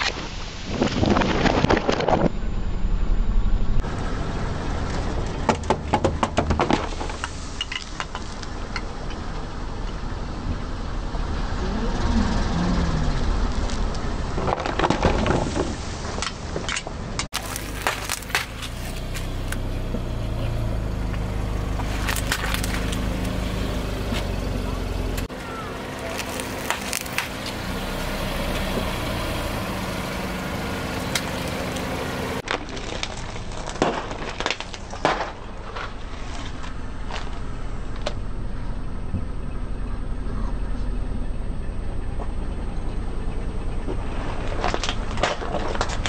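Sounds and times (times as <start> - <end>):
car engine rumbling: 0.0 - 46.0
tyre crushing cans: 17.3 - 19.2.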